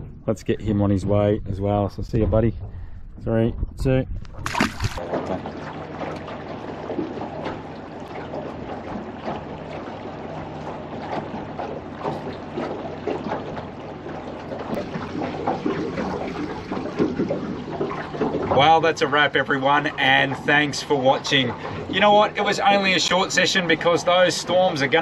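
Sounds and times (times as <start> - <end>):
low steady hum: 0.0 - 18.7
water lapping against boat hull: 3.6 - 25.0.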